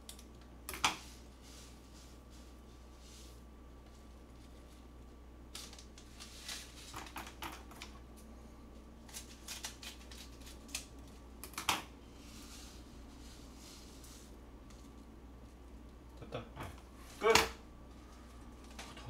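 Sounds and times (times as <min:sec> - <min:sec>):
low steady hum: 0:00.0 - 0:19.0
plastic packets rustling: 0:09.0 - 0:11.2.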